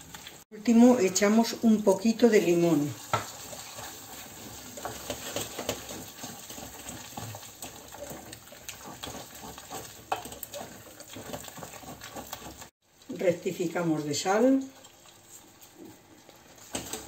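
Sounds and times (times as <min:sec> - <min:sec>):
wooden spoon stirring thick puree: 0:00.7 - 0:12.8.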